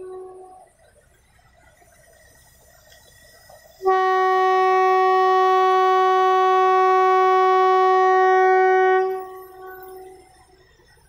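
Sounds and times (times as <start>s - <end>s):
train horn blast: 0.0s - 0.7s, 3.8s - 10.2s.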